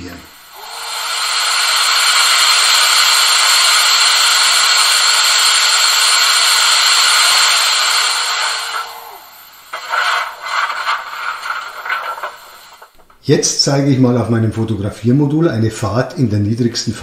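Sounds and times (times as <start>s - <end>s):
loud hiss of escaping steam: 0.0s - 13.2s
faint steady hum: 0.0s - 17.0s
uneven steam puffs: 0.0s - 17.0s.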